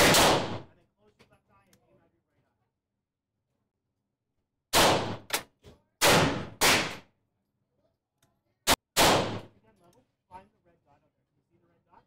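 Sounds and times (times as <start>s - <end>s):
gunshots echoing indoors: 0.0s - 0.7s, 4.7s - 5.4s, 6.0s - 7.0s, 8.7s - 9.5s.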